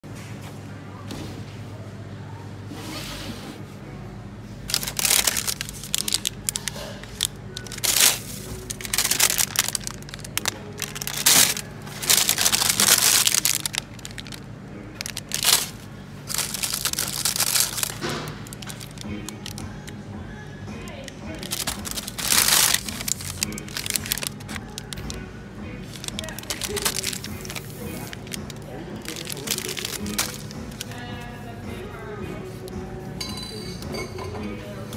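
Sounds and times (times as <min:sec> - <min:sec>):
steady low hum: 0:00.0 - 0:34.9
plastic wrappers crinkling: 0:04.6 - 0:19.9, 0:20.8 - 0:25.2, 0:25.8 - 0:31.2.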